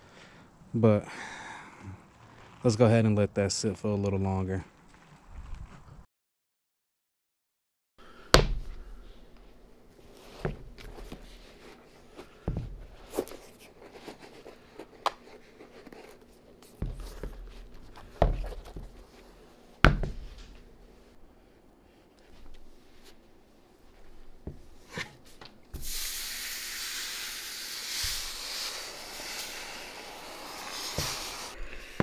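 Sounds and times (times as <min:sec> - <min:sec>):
sharp knocks and thuds: 0:08.3 - 0:08.8, 0:19.8 - 0:20.7.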